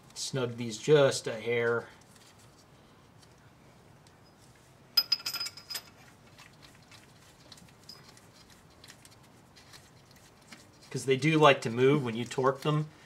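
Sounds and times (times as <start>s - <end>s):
metal key clinking on studs: 5.0s - 6.0s.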